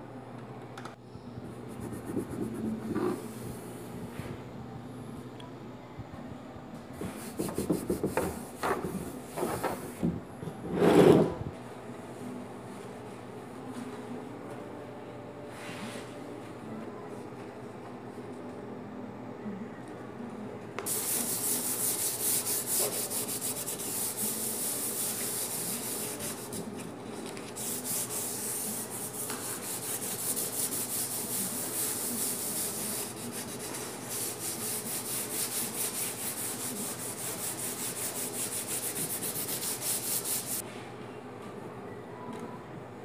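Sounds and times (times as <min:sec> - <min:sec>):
sandpaper rubbing on plastic: 0:20.9 - 0:26.8, 0:27.4 - 0:40.6.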